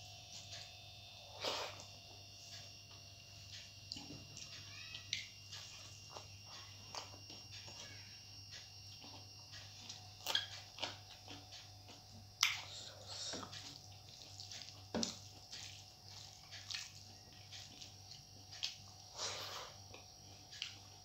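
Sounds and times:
wet chewing: 0:08.9 - 0:21.0
fingers mixing rice on steel plate: 0:13.6 - 0:18.8.

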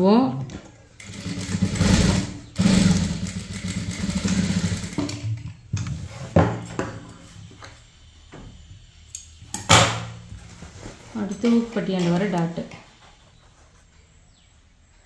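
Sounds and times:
sewing machine running: 0:01.0 - 0:05.2.

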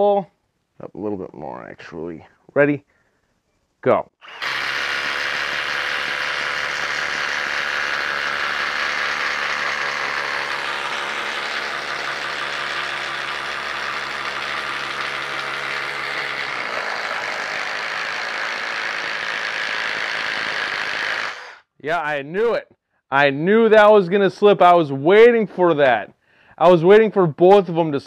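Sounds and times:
impact driver hammering: 0:04.2 - 0:21.5
low hum of boring: 0:04.2 - 0:21.5.

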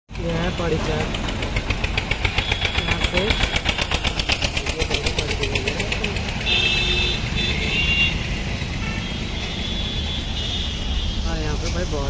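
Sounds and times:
fast engine clatter: 0:00.1 - 0:09.0
engine and road rumble: 0:00.1 - 0:12.0.

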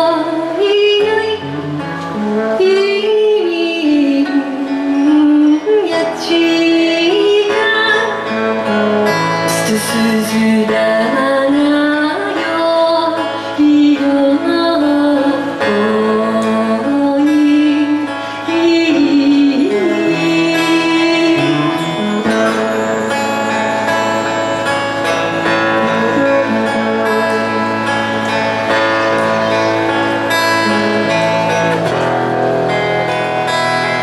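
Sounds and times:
woman singing: 0:00.0 - 0:32.1
strummed acoustic guitar: 0:00.0 - 0:34.0
bass guitar: 0:01.4 - 0:02.9, 0:15.4 - 0:34.0.

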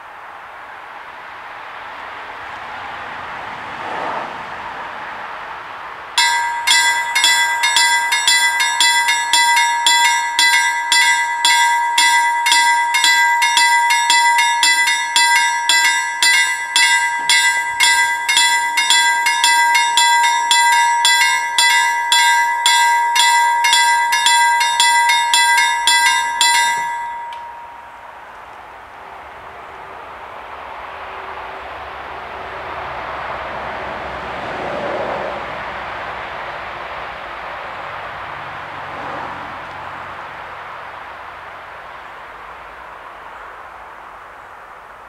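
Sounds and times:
level crossing bells ringing: 0:06.2 - 0:28.3.

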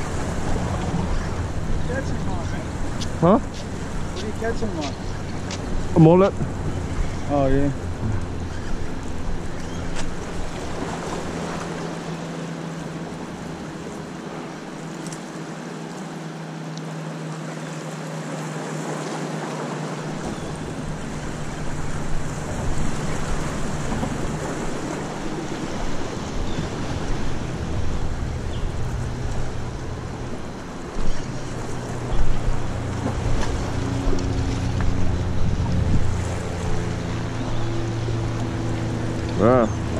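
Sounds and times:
waves washing against rocks: 0:00.0 - 0:08.3
wind buffeting microphone: 0:00.0 - 0:11.6, 0:20.1 - 0:39.9.

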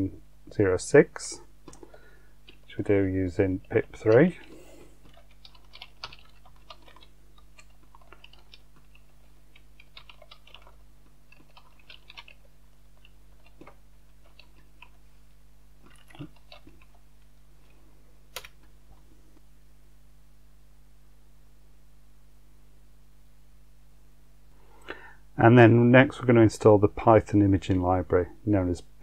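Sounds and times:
steady low hum: 0:00.0 - 0:29.0
computer keyboard typing: 0:01.7 - 0:02.8, 0:03.4 - 0:15.0, 0:15.8 - 0:17.0, 0:18.4 - 0:18.6.

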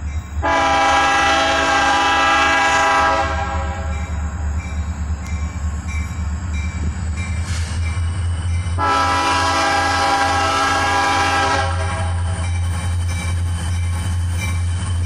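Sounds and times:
locomotive engine rumbling: 0:00.0 - 0:15.0
train air horn: 0:00.4 - 0:04.0, 0:08.8 - 0:12.3.

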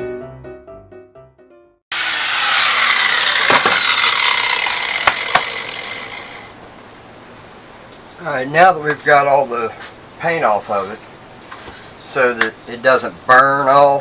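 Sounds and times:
piano music: 0:00.0 - 0:01.8
angle grinder winding down: 0:01.9 - 0:06.6
sharp knocks: 0:03.4 - 0:04.0, 0:05.0 - 0:05.7.

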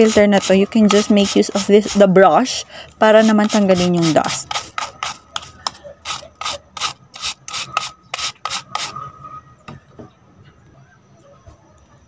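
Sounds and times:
brush bristles rasping on filter: 0:00.0 - 0:09.0.

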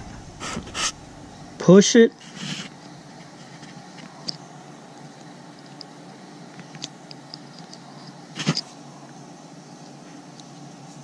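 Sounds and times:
steady low hiss: 0:00.0 - 0:06.5.

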